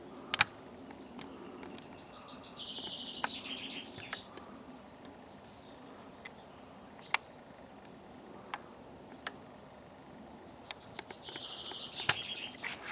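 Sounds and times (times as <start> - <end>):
faint outdoor background: 0.0 - 12.9
songbird chirping and trilling: 0.0 - 12.9
sharp clicks: 0.3 - 1.9, 10.6 - 12.9.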